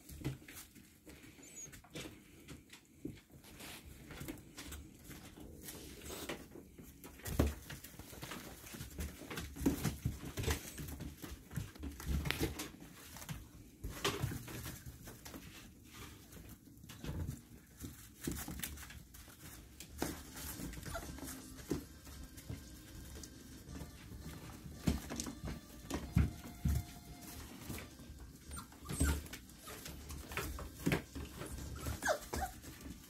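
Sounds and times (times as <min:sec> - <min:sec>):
paws scratching plastic: 0:00.0 - 0:33.0
puppies whimpering: 0:20.0 - 0:33.0.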